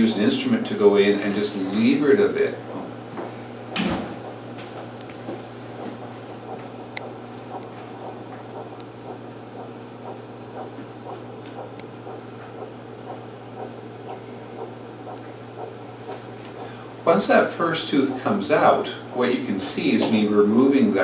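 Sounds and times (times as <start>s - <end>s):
low equipment hum: 0.0s - 21.0s
sharp clicks: 4.8s - 5.5s, 6.2s - 10.7s.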